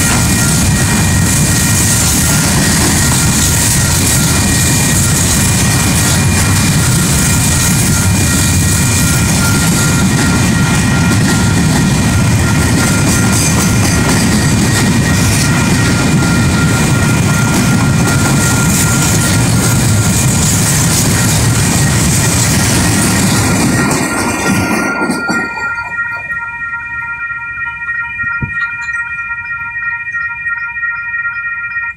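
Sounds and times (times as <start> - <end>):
train rumbling: 0.0 - 31.9.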